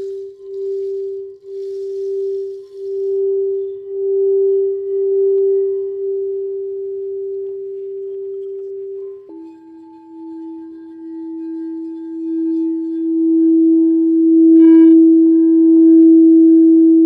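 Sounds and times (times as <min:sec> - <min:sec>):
higher singing bowl tone: 0:00.0 - 0:17.0
low singing bowl hum: 0:00.0 - 0:17.0.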